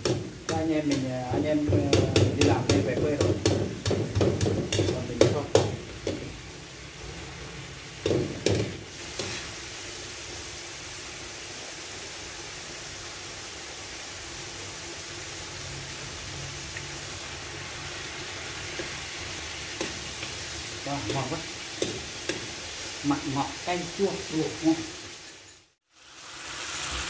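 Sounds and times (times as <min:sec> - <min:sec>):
utensil knocking on pan: 0:00.0 - 0:06.4, 0:08.0 - 0:09.3, 0:21.0 - 0:22.5
meat sizzling in a pan: 0:00.0 - 0:27.0.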